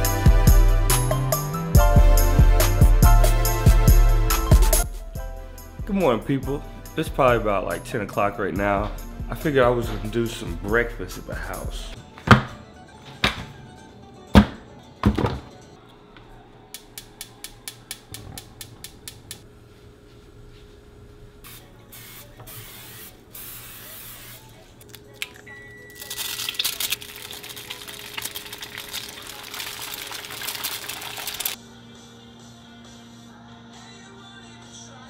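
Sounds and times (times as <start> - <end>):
quiet background music: 0.0 - 35.0
cooking spray hissing: 21.5 - 24.6, 26.3 - 31.6
eggs sizzling in pan: 26.0 - 31.6.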